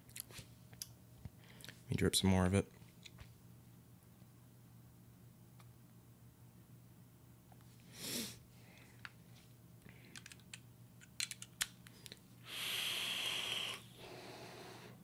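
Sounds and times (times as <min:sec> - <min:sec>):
vape drag hiss: 0:12.4 - 0:14.9.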